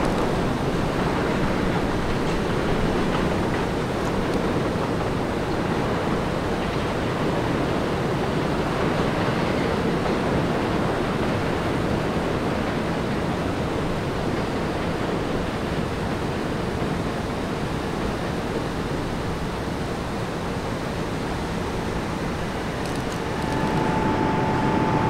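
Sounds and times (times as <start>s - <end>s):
distant subway train rumble: 0.0s - 25.0s
faint steady hum: 21.6s - 25.0s.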